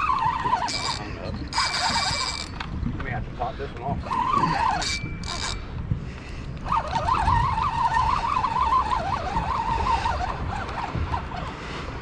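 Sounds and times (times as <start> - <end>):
fishing reel whining: 0.0 - 2.7, 4.0 - 5.7, 6.6 - 11.5
wind rumble on microphone: 0.0 - 12.0.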